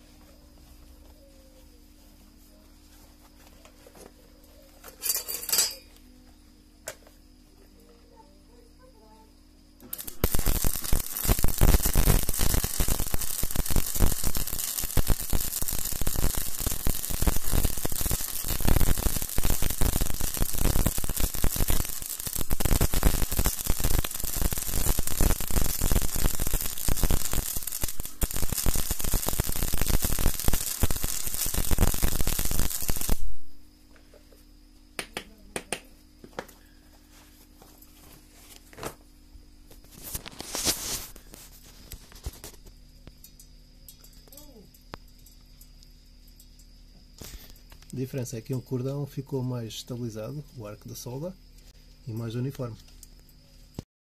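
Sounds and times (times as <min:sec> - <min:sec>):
welding arc crackling and hissing: 0:09.8 - 0:33.6, 0:39.7 - 0:51.3.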